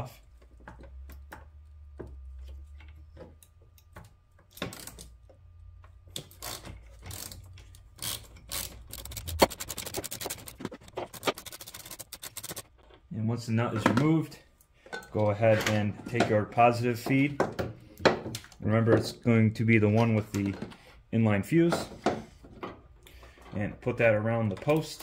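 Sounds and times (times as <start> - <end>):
ratchet wrench clicking: 6.2 - 12.6
low hum: 7.1 - 13.4.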